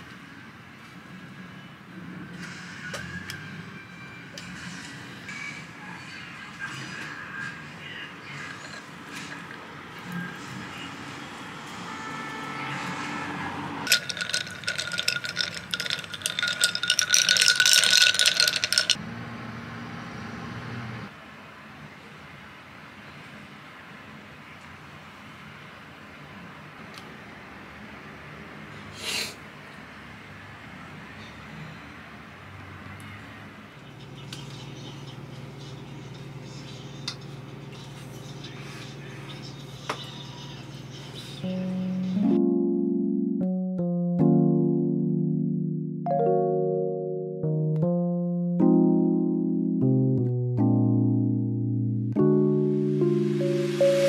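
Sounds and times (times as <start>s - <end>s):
ice cubes clinking in glass: 13.9s - 19.0s.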